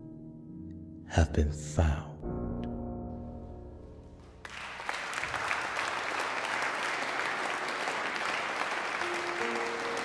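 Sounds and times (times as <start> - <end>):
crowd applause: 4.3 - 10.0
held musical chord: 8.8 - 10.0.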